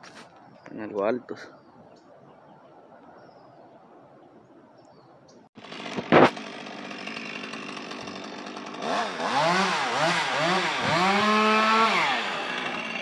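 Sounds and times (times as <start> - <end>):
chainsaw revving: 5.6 - 13.0.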